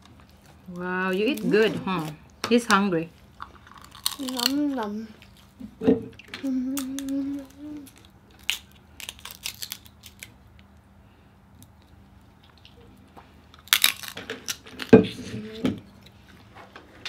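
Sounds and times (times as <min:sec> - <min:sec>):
crab shell crackling: 0:03.3 - 0:05.4, 0:06.7 - 0:10.8, 0:13.6 - 0:14.9.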